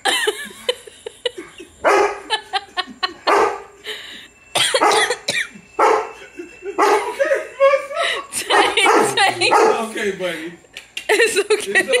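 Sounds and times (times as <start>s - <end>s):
dog barking and yipping: 1.8s - 2.4s, 3.2s - 3.8s, 4.7s - 5.2s, 5.8s - 6.2s, 6.8s - 7.8s, 8.4s - 9.9s.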